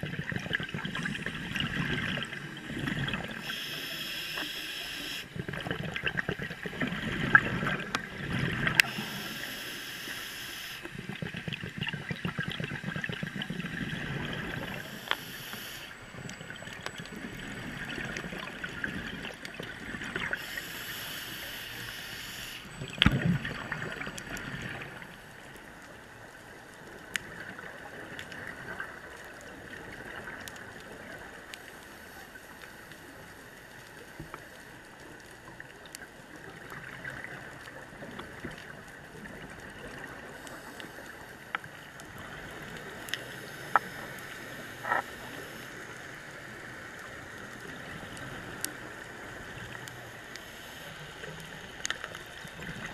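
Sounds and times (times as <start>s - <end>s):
underwater bubbles gurgling: 0.0s - 52.9s
faint hiss: 3.1s - 5.4s, 8.6s - 11.1s, 14.4s - 16.0s, 20.2s - 22.8s, 39.9s - 52.9s.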